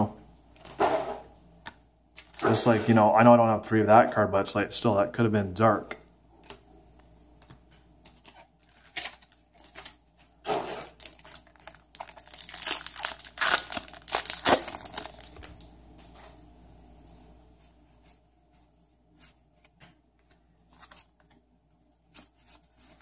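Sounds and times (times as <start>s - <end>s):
foil wrapper crinkling and tearing: 2.2s - 3.0s, 8.1s - 15.7s.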